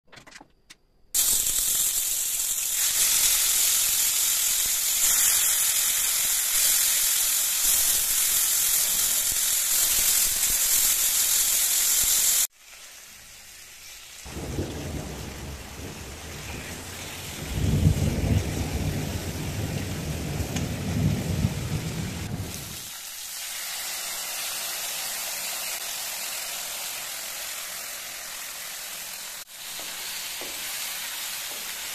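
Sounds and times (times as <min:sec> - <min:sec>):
meat sizzling in oil: 0:01.2 - 0:17.6, 0:20.8 - 0:31.9.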